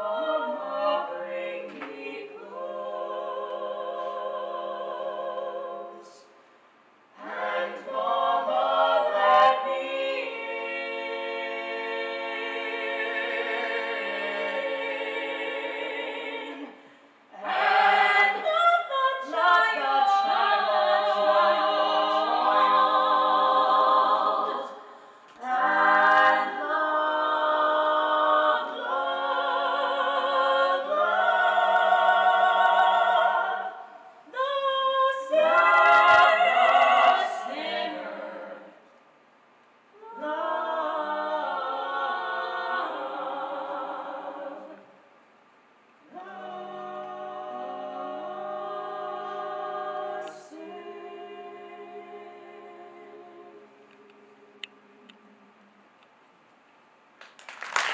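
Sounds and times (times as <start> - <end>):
vocal ensemble singing in harmony: 0.0 - 6.5, 7.1 - 39.0, 39.9 - 45.1, 46.0 - 55.9.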